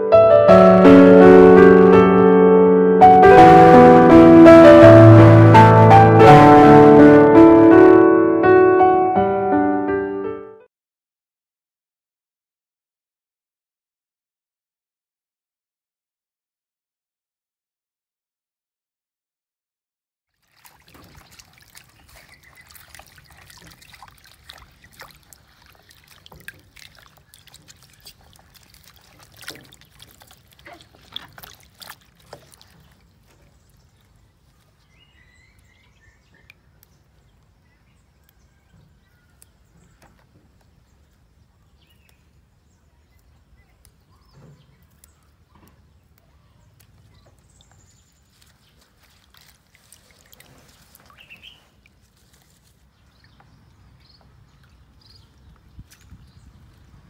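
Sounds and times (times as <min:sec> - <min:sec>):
water sloshing in plastic basin: 0:20.3 - 0:34.9, 0:46.9 - 0:53.6
faint bird chirps: 0:34.5 - 0:36.8.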